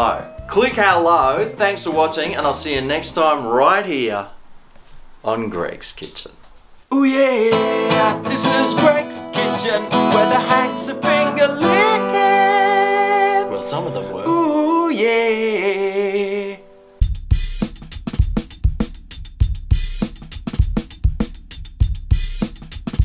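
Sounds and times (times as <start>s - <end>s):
drum-kit music: 0.0s - 3.3s, 7.5s - 12.4s, 17.0s - 23.0s
man singing: 6.9s - 16.8s
acoustic guitar strummed: 7.2s - 14.8s.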